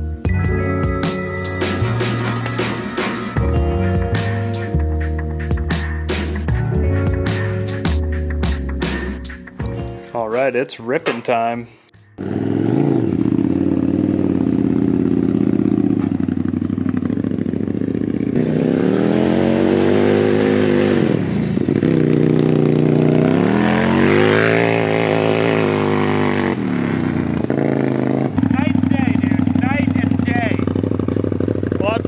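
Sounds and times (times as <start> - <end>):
kart engine revving: 12.2 - 32.0.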